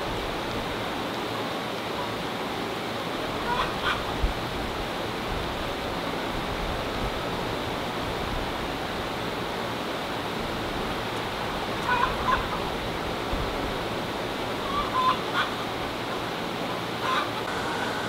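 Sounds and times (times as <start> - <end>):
steady rushing noise: 0.0 - 18.0
hens calling: 3.4 - 4.2, 11.8 - 13.0, 14.6 - 18.0.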